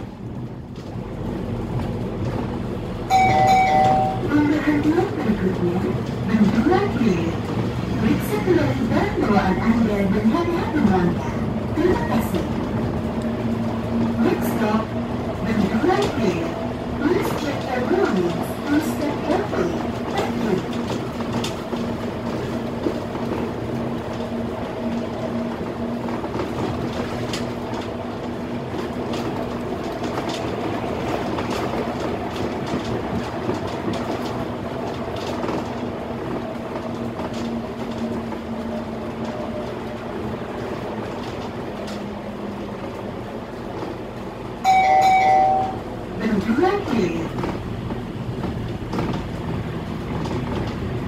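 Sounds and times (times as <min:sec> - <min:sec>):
bus drivetrain hum: 0:00.0 - 0:51.0
loud tone: 0:03.1 - 0:04.3, 0:44.6 - 0:45.8.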